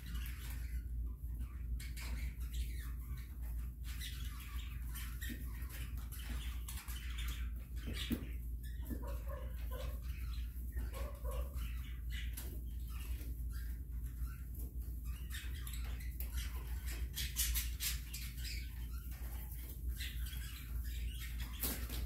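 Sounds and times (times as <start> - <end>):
chickens scratching in wood shavings: 7.4 - 15.1, 18.8 - 22.0
chickens clucking: 7.9 - 11.6.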